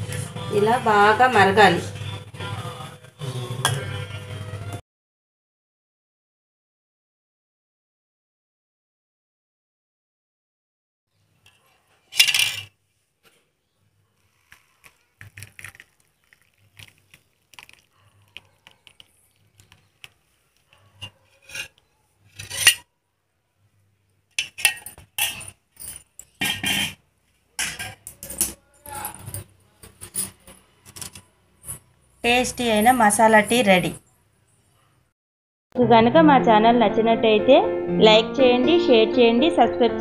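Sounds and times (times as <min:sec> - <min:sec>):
steel kitchenware clinking: 0:12.1 - 0:12.7, 0:20.9 - 0:22.8, 0:24.4 - 0:27.0, 0:27.6 - 0:31.3.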